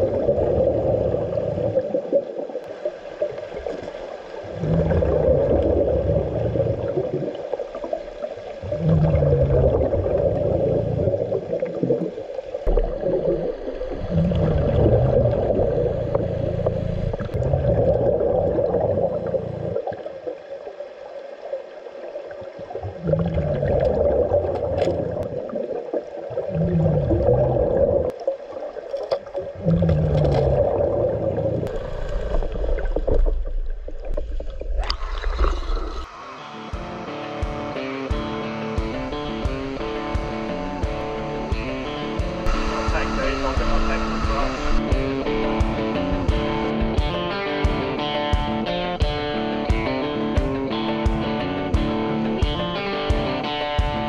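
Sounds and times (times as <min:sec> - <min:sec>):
exhaled bubbles underwater: 0:00.0 - 0:36.1
steady hum: 0:12.7 - 0:17.5, 0:35.1 - 0:49.5.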